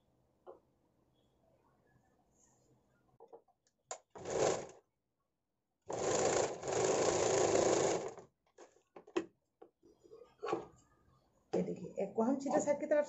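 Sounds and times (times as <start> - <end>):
sewing machine stitching: 4.2 - 4.8, 5.9 - 8.8.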